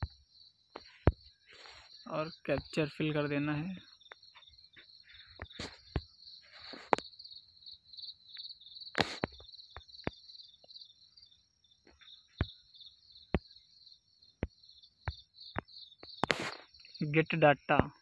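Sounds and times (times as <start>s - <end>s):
crickets chirping: 0.0s - 18.0s
sharp clicks and taps: 14.4s - 16.7s.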